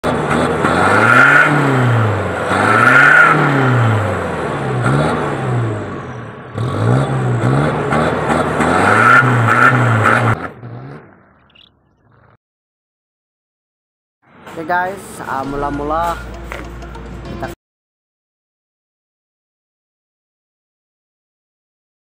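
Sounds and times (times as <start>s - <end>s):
high turbo whine: 0.0s - 11.4s
turbocharged engine revving: 0.0s - 11.6s.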